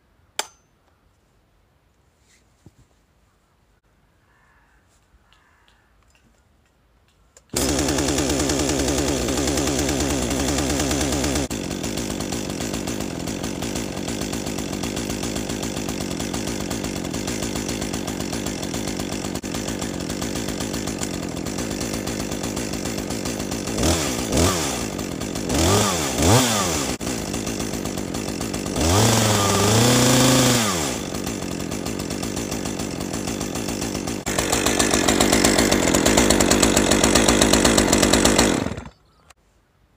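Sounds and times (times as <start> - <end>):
chainsaw engine revving and idling: 7.5 - 39.0.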